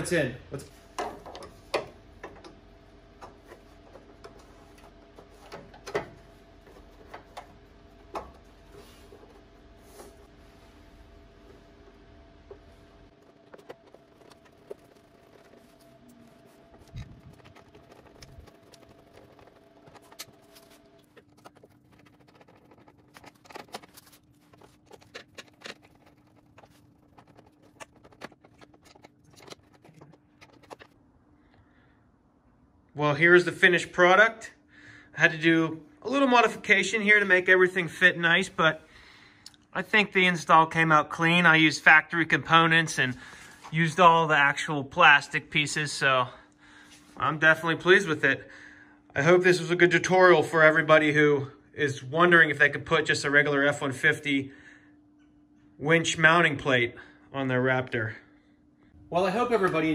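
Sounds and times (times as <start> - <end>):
steady low hum: 0.0 - 59.9
plastic rubbing on plastic: 6.4 - 31.0.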